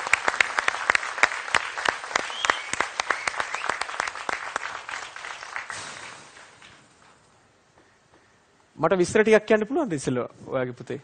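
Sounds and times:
crowd applauding: 0.0s - 6.8s
loud single claps: 0.0s - 6.8s.

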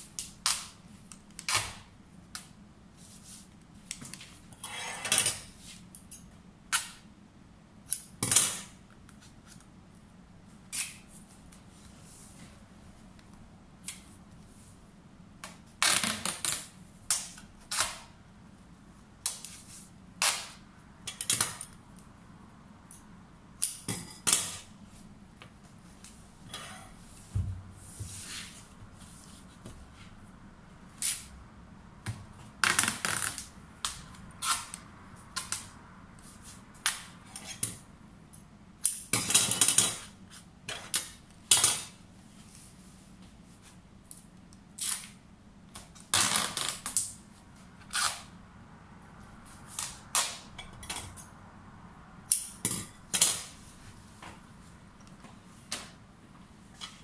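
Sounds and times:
tape ripping off roll: 46.1s - 47.1s.

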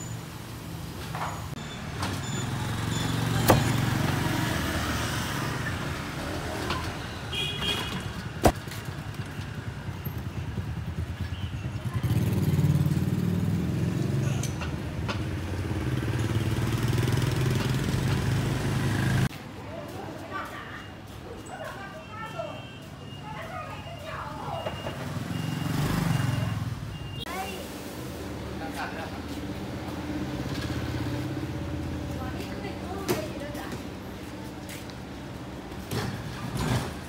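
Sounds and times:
motorcycle engines running: 8.3s - 19.3s.

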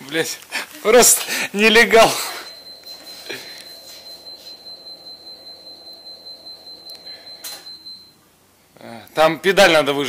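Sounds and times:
high-pitched warning beep: 1.7s - 8.2s.

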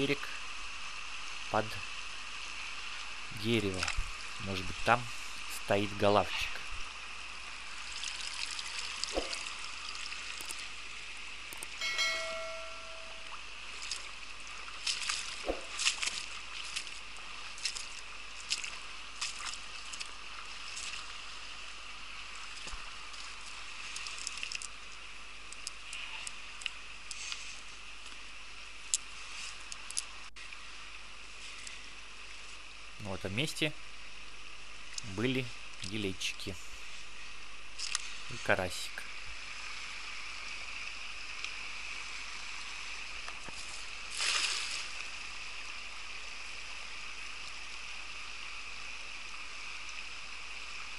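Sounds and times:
river water running over stones: 0.0s - 50.9s
brief pitched tone: 11.8s - 13.4s
net splashing in water: 44.1s - 45.0s.

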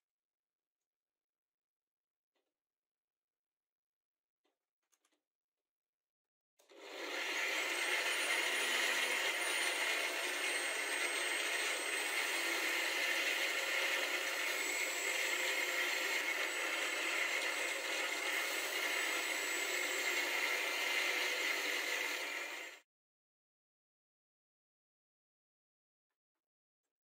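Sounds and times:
bench grinder whining: 6.7s - 22.8s
drill bit grinding on disc: 6.7s - 22.8s.

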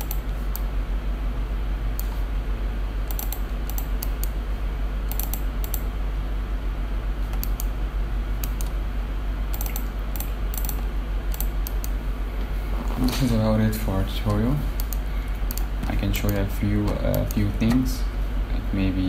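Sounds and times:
computer keyboard clicking: 0.0s - 0.7s, 3.1s - 4.4s, 5.1s - 5.9s, 7.3s - 7.7s, 8.4s - 8.8s, 9.5s - 11.9s, 14.2s - 17.8s
steady low hum and hiss: 0.0s - 19.0s.

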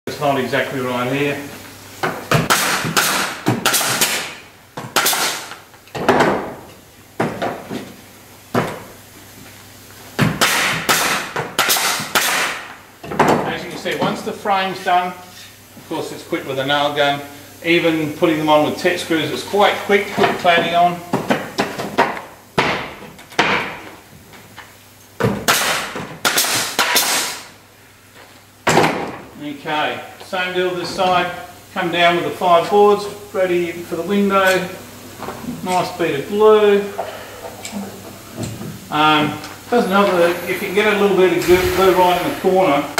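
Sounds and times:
nail gun shots: 2.5s - 4.4s, 5.0s - 5.5s, 10.4s - 12.6s, 25.5s - 27.4s.

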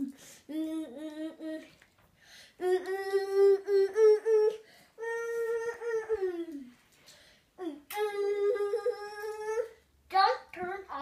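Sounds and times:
child humming: 2.6s - 6.7s, 7.6s - 9.8s.

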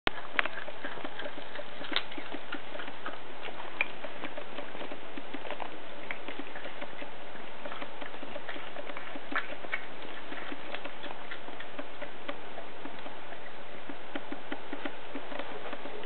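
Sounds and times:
cat chewing: 0.1s - 16.0s.

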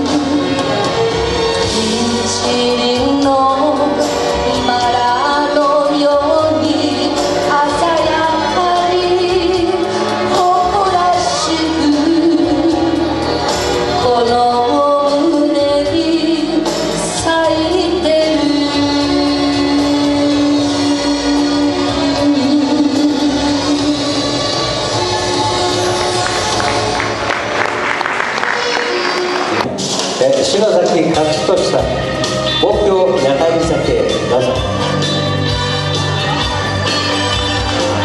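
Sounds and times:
woman singing into a microphone: 0.0s - 0.9s, 1.6s - 24.7s
instrumental accompaniment: 0.0s - 38.0s.

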